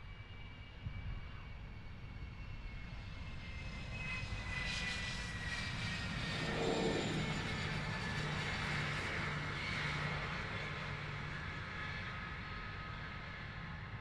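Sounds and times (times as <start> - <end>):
jet engine whine: 0.0 - 14.0
jet engine roar: 3.2 - 13.6
low rumble: 5.7 - 9.2.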